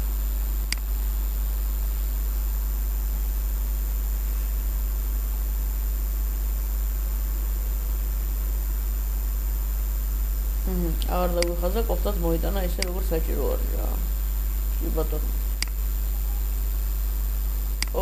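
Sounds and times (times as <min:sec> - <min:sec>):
faint high whine: 0:00.0 - 0:18.0
low electrical hum: 0:00.0 - 0:18.0
even hiss: 0:10.1 - 0:18.0.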